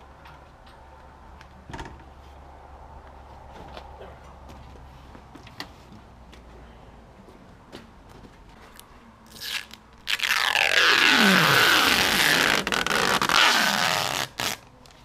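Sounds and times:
plastic film peeling: 0:09.3 - 0:14.6.

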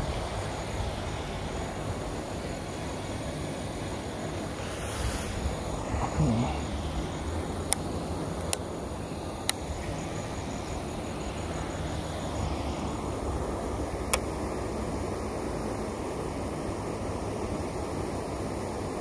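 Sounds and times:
sharp clicks: 0:07.7 - 0:08.7.

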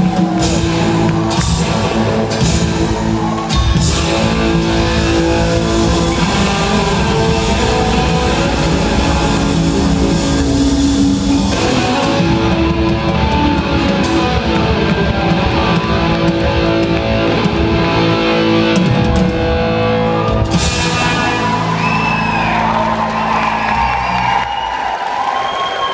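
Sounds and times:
drum kit with cymbals: 0:00.0 - 0:16.5, 0:20.3 - 0:21.8
distorted electric guitars: 0:00.0 - 0:24.3
bass guitar: 0:00.0 - 0:24.5.

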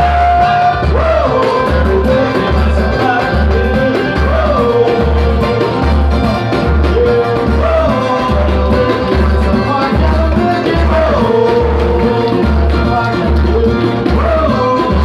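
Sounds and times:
group singing: 0:00.0 - 0:15.0.

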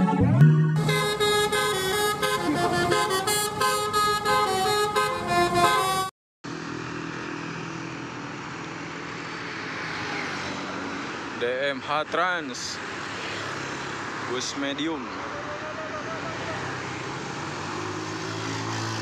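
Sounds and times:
multi-tone bus horn melody: 0:00.0 - 0:06.1
motorcycles and cars climbing: 0:00.3 - 0:19.0.

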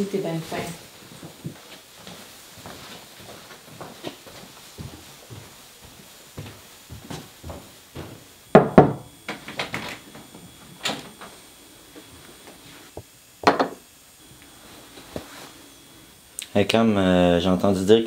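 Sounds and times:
footsteps on stairs: 0:00.6 - 0:09.0
knocking on wooden door: 0:08.6 - 0:09.1.

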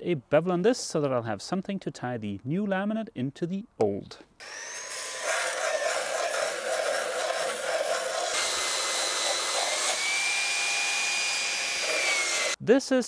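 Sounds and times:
grinder grinding fiberglass: 0:04.4 - 0:12.6
grinder motor whine: 0:04.4 - 0:12.6.

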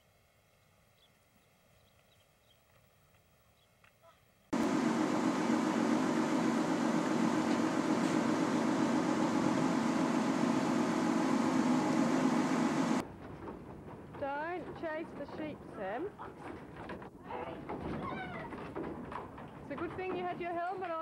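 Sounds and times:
ventilation fans droning: 0:04.5 - 0:16.1.

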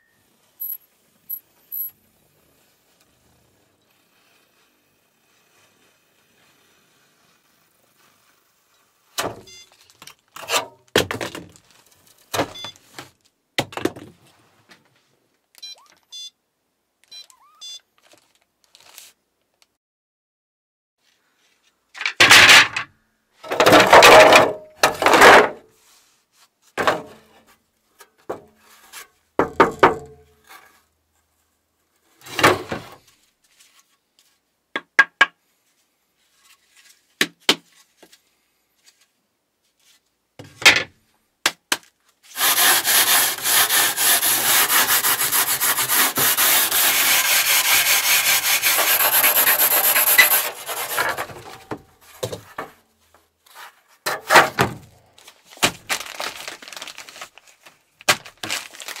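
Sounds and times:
rubbing and scraping strokes: 0:42.2 - 0:52.1.

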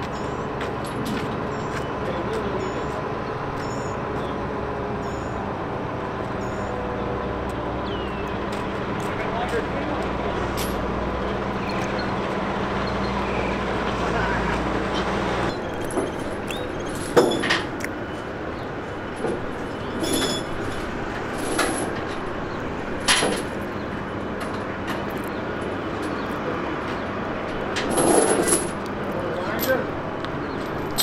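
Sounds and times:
outdoor background hum: 0:00.0 - 0:31.0
metal chains clanking: 0:10.4 - 0:11.0, 0:15.5 - 0:17.7, 0:19.2 - 0:22.4, 0:27.8 - 0:29.9, 0:30.6 - 0:31.0.

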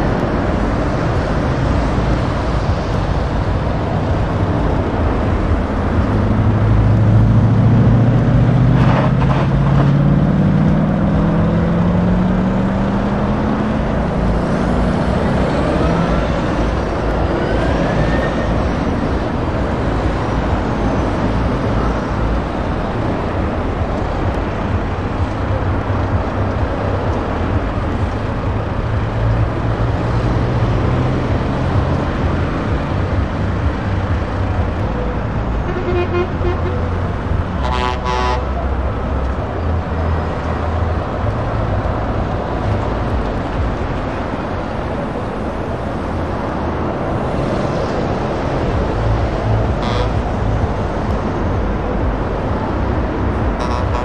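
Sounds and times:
lorry diesel engines rumbling: 0:00.0 - 0:54.0
vehicle horn: 0:35.6 - 0:36.9, 0:37.6 - 0:38.6, 0:49.8 - 0:50.3, 0:53.6 - 0:54.0.

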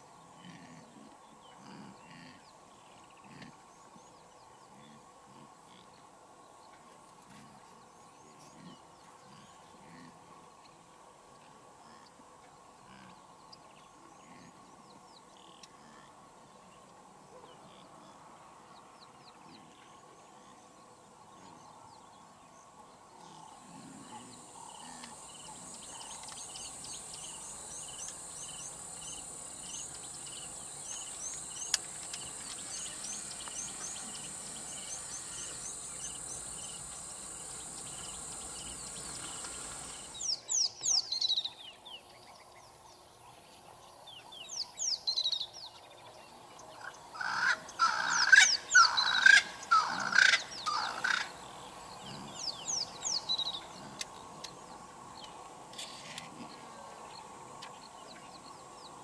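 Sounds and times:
high insect drone: 0:23.4 - 0:40.6, 0:46.6 - 0:58.9.

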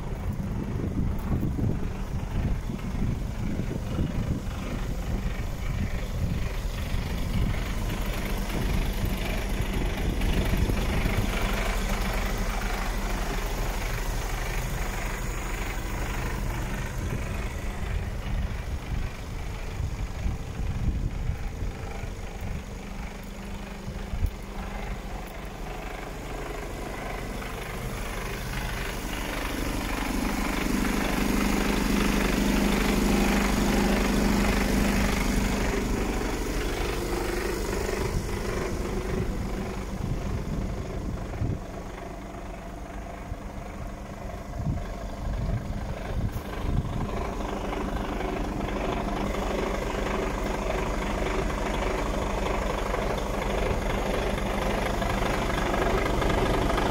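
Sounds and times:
diesel truck engine idling: 0:00.0 - 0:56.9.

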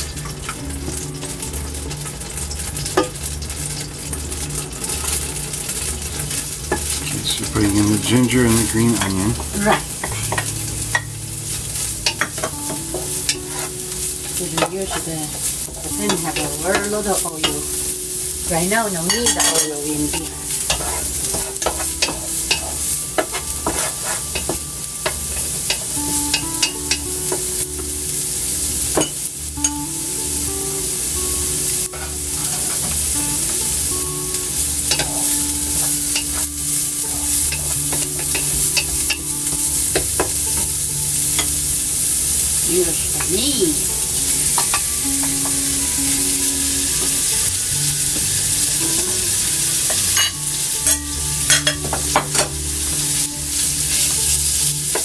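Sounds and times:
food sizzling in oil: 0:00.0 - 0:55.0
wooden spatula scraping pot: 0:19.1 - 0:24.5.

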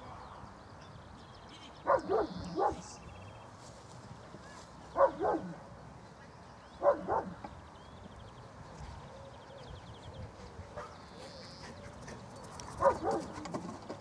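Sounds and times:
dog barking: 0:01.9 - 0:02.9, 0:05.0 - 0:05.6, 0:06.8 - 0:07.4, 0:12.8 - 0:13.4.

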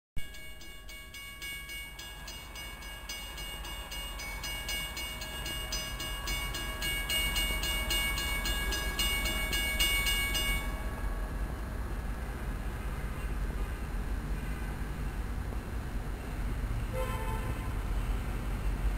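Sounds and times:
railway warning bell ringing: 0:00.2 - 0:11.0
approaching train rumble: 0:00.2 - 0:18.9.

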